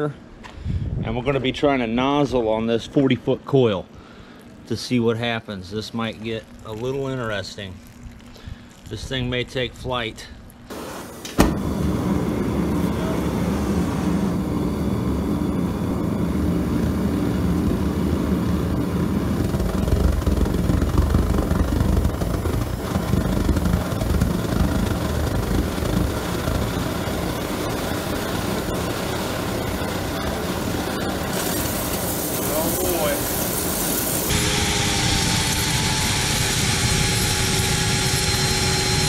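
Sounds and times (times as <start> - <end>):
burner low rushing: 6.5 - 39.0
steam jetting hiss: 10.7 - 12.2, 31.0 - 39.0.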